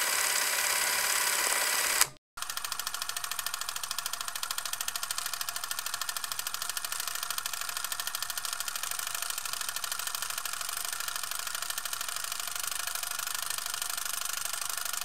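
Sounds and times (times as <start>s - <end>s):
camera mechanism clicking and whirring: 0.0s - 8.6s.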